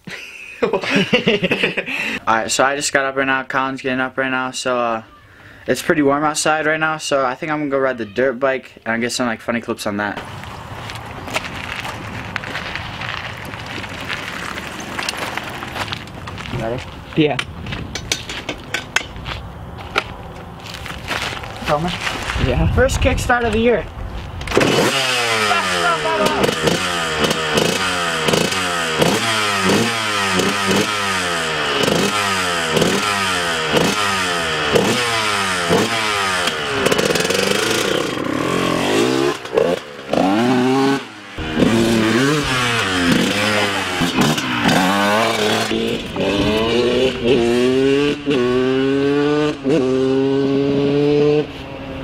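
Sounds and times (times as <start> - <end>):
dirt bike engine revving: 24.4 - 52.0.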